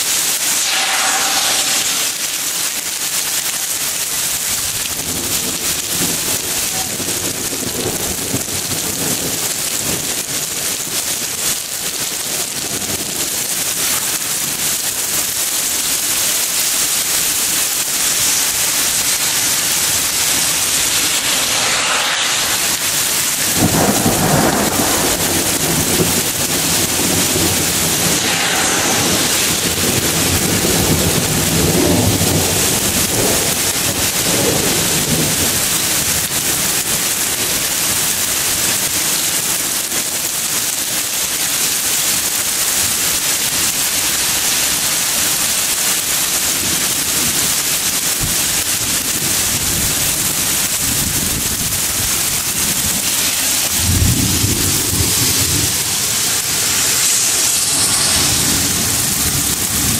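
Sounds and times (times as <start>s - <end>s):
heavy rain pouring: 0.0s - 59.9s
thunder rumbling: 0.4s - 3.2s, 18.7s - 36.8s, 51.0s - 59.9s.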